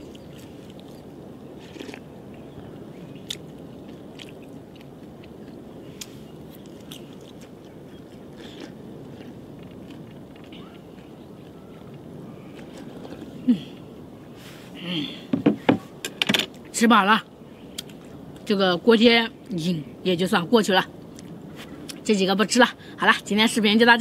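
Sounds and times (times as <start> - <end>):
person chewing with crunches: 0.0 - 13.9
low background noise: 0.0 - 24.0.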